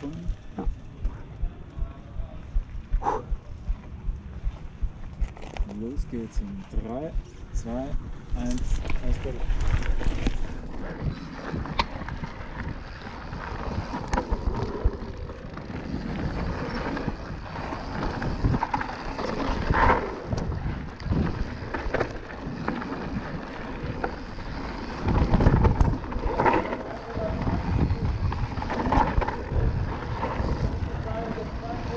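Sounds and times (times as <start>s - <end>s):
wind buffeting microphone: 0.0s - 31.9s
tyre roar over dirt: 8.5s - 31.9s.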